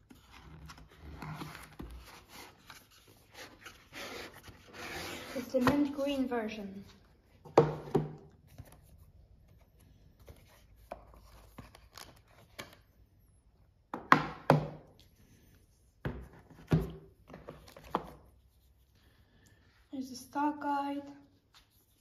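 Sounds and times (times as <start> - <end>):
cardboard and paper rustling: 0.0 - 7.2.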